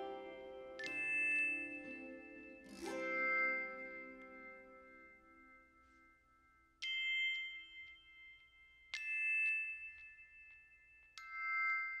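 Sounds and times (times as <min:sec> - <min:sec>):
metal bell ringing: 0:00.0 - 0:06.2, 0:06.8 - 0:12.0.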